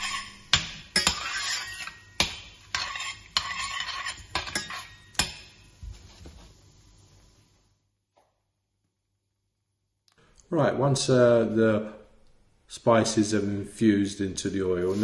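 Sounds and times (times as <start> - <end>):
ladle scraping saucepan: 0.0 - 5.2.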